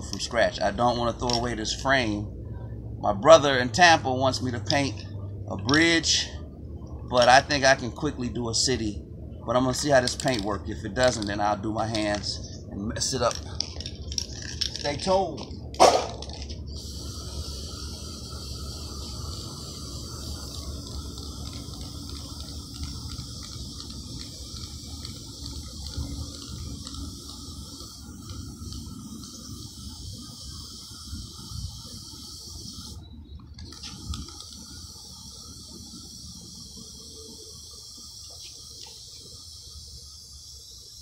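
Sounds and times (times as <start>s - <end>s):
spray-paint can hissing: 10.0s - 11.2s, 13.2s - 41.0s.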